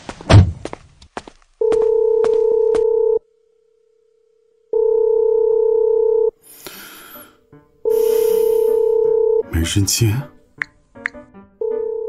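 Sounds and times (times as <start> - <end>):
telephone ringback tone: 1.6 - 3.3, 4.7 - 6.4, 7.8 - 9.4, 11.6 - 12.0.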